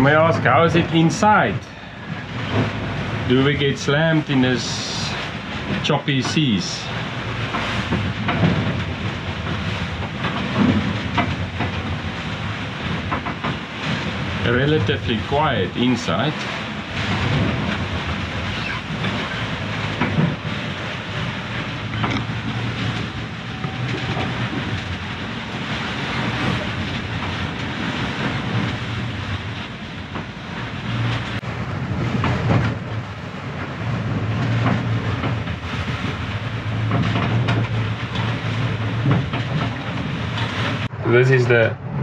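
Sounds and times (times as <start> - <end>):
water washing along hulls: 0.0 - 42.0
sharp knocks: 7.5 - 14.2.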